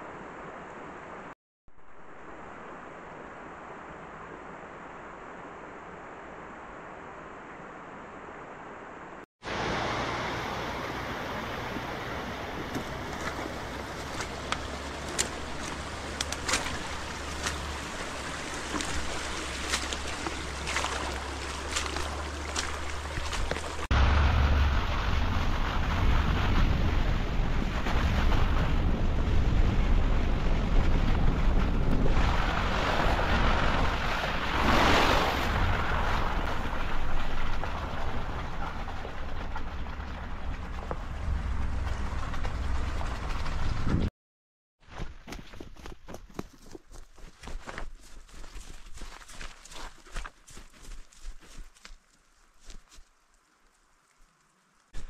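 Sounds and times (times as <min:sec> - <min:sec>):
outdoor rushing noise with hum: 0:00.0 - 0:44.1
deep rumble: 0:10.3 - 0:34.6, 0:35.4 - 0:44.1.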